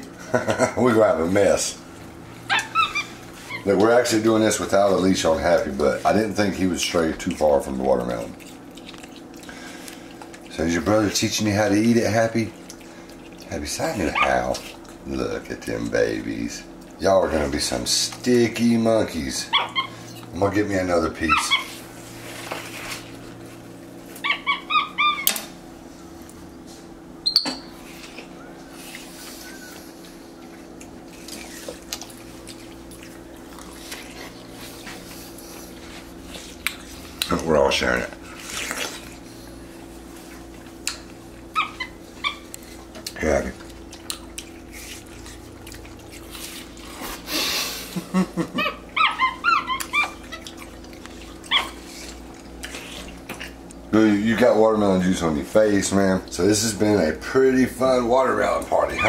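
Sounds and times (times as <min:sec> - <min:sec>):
monkeys chirping: 0:02.4 - 0:03.7, 0:19.5 - 0:20.3, 0:21.2 - 0:21.8, 0:24.2 - 0:25.4, 0:48.6 - 0:50.5
sharp squeak: 0:27.2 - 0:27.7.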